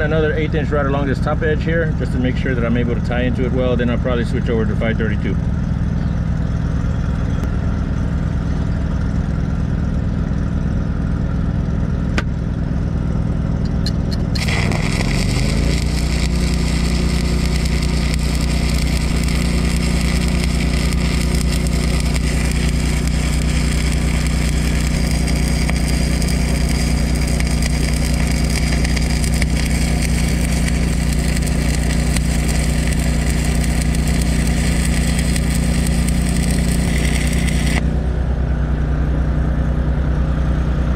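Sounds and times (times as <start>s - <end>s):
engine running: 0.0s - 40.9s
welding arc crackling hiss: 13.7s - 37.9s.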